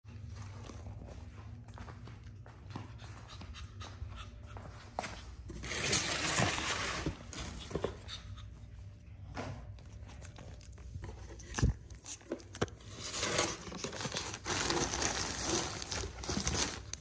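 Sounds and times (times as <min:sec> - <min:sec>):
puppy panting: 0:02.6 - 0:05.1.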